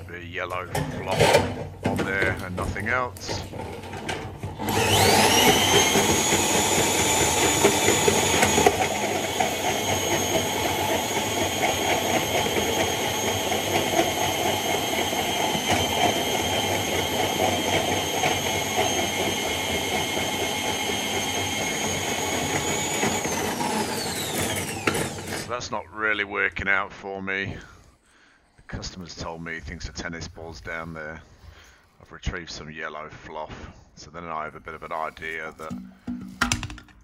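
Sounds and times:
drain snake motor whining: 0:04.5 - 0:25.6.

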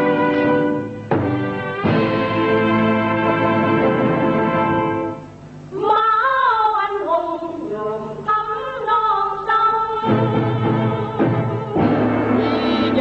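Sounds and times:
instrumental chord: 0:00.0 - 0:05.3, 0:11.8 - 0:13.0
low instruments: 0:00.0 - 0:06.1, 0:09.7 - 0:13.0
high solo voice singing: 0:05.8 - 0:13.0.

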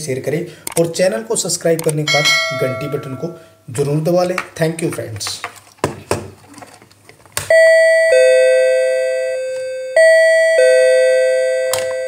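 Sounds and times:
doorbell ding-dong chime: 0:02.1 - 0:03.5, 0:07.5 - 0:12.0.

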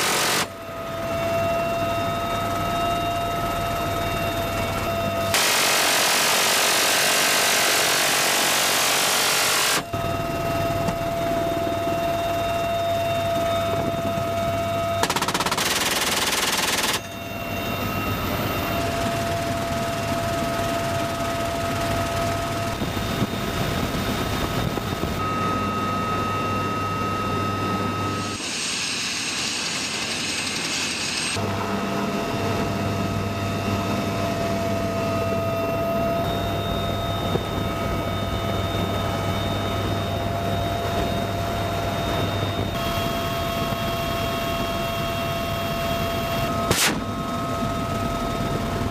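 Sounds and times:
helicopter whine and hum: 0:00.0 - 0:48.9
minigun firing bursts: 0:15.0 - 0:17.0.

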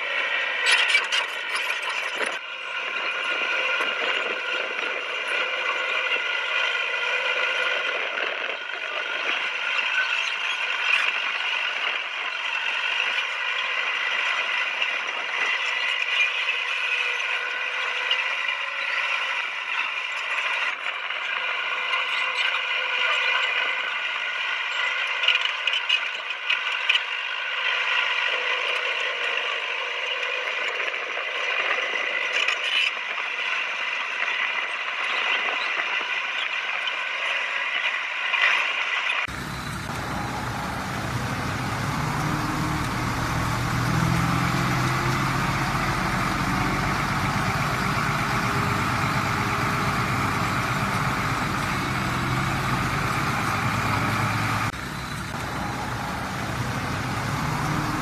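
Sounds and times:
bulldozer mechanical drone: 0:39.3 - 0:58.0
steel tracks clanking: 0:39.3 - 0:58.0.

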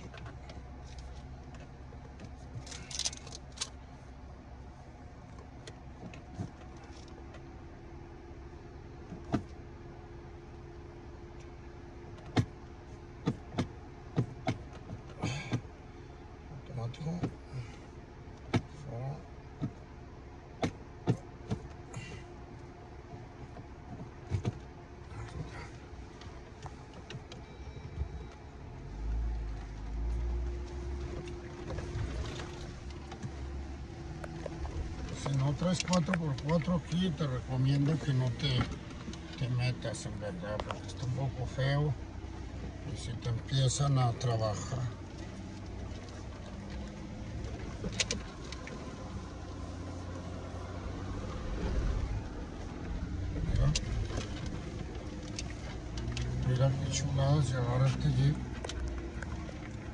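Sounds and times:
car engine humming: 0:00.0 - 0:59.9
deep rumble: 0:21.6 - 0:59.9.

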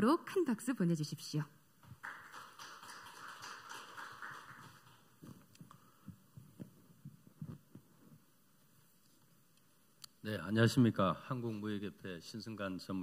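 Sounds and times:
faint applause: 0:01.8 - 0:05.2.

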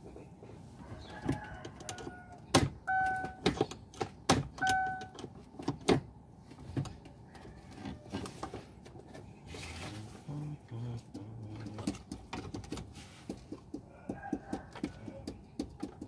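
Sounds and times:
short electronic beeps: 0:02.9 - 0:03.4, 0:04.6 - 0:05.1.

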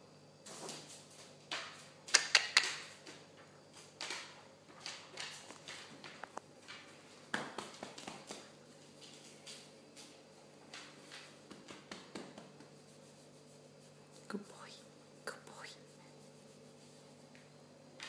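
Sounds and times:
dog claws tapping on wooden floor: 0:03.8 - 0:12.7.

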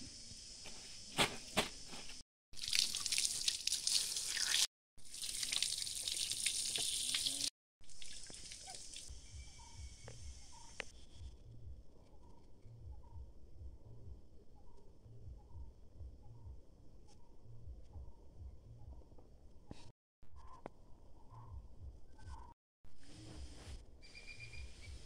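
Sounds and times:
running water splashing: 0:02.6 - 0:09.1.

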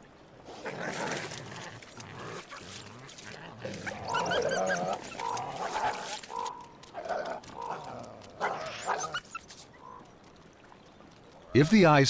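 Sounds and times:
coyotes grunting: 0:00.4 - 0:10.1
coyotes yipping and whining: 0:01.2 - 0:10.3.

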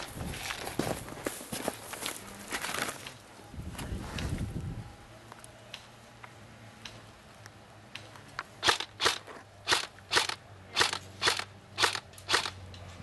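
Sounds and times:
footsteps crunching dry grass: 0:00.0 - 0:04.4.

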